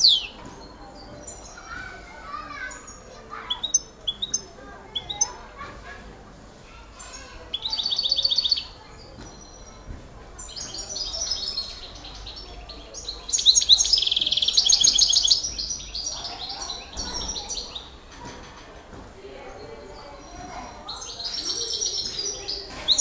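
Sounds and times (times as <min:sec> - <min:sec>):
songbird twittering and trilling: 0:00.0 - 0:05.5, 0:06.9 - 0:18.0, 0:19.4 - 0:23.0.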